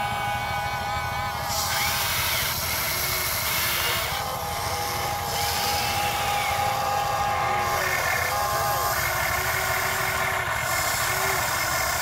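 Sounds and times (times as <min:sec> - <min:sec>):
electric motor whine: 0:00.0 - 0:12.0.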